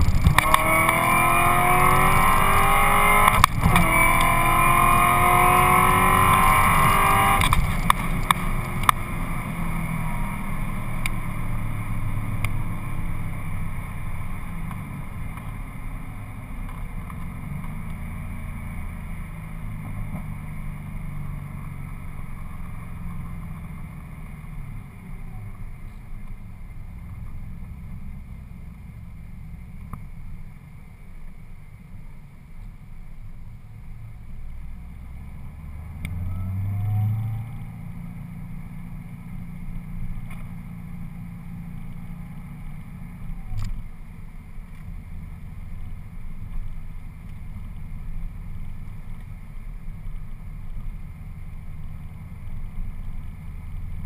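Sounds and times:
tyre and wind noise: 0.0s - 1.3s, 5.4s - 9.7s
car engine at full throttle: 0.0s - 54.0s.

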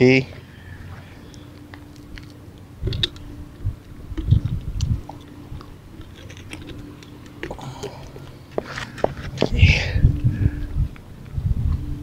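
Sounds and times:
crunchy low thumps: 2.8s - 12.0s.

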